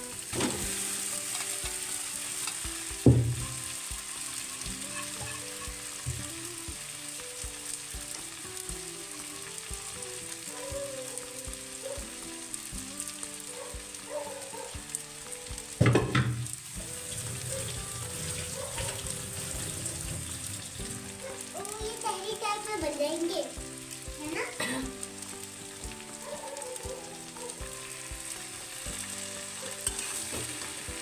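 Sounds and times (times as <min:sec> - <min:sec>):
rice sizzling in a pan: 0:00.0 - 0:31.0
rice scraped from a metal pot: 0:04.9 - 0:05.8.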